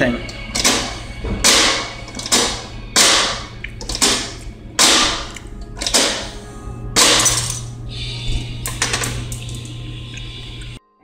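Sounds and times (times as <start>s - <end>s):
metal handle rattling: 3.8s - 6.3s.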